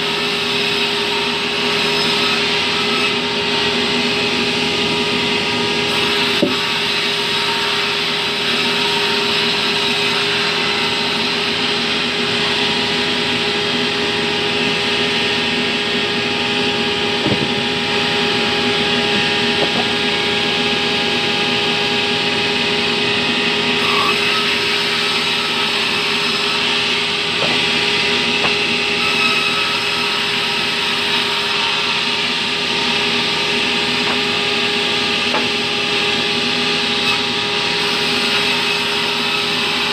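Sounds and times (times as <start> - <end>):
sawmill machine hum: 0.0 - 39.9
timber knocks: 17.1 - 18.0, 19.1 - 20.0, 27.4 - 28.8, 34.0 - 35.8.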